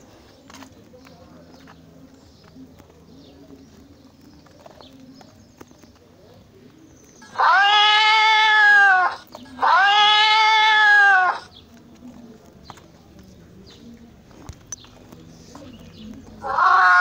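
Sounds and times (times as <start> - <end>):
cat yowling: 7.3 - 11.5, 16.4 - 17.0.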